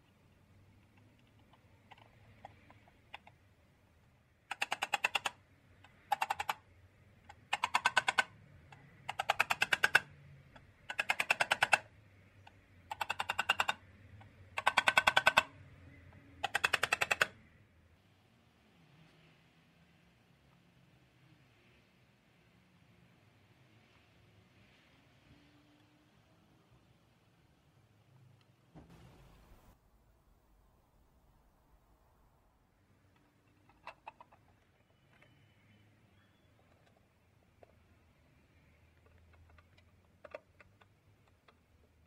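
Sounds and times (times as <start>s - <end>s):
ratchet-like mechanical clicking: 4.4s - 6.7s, 7.3s - 11.9s, 12.5s - 15.6s, 16.4s - 17.4s.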